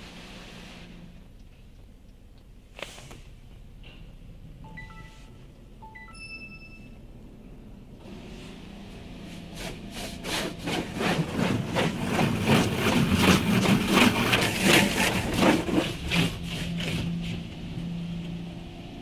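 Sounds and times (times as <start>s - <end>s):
machine hum: 4.5s - 19.0s.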